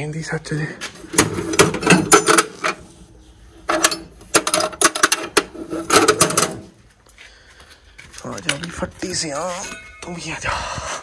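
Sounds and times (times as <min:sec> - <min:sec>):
chains and metal parts clanking: 0:08.1 - 0:10.2.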